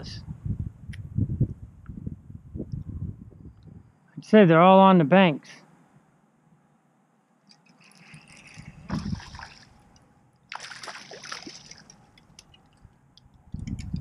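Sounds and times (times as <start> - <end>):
fish splashing in water: 7.5 - 12.8.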